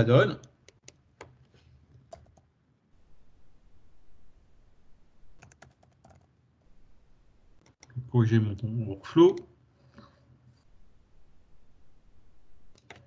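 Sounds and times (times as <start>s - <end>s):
faint keyboard typing: 0.4s - 2.5s, 5.3s - 6.4s, 7.6s - 8.7s, 12.7s - 13.0s.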